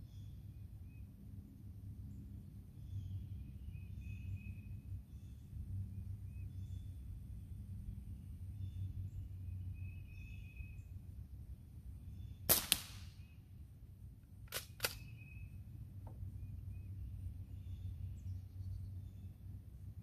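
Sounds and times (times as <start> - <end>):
air rifle shot cracks: 12.5 - 13.3, 14.5 - 15.1
rifle pump action clacks: 14.5 - 15.0.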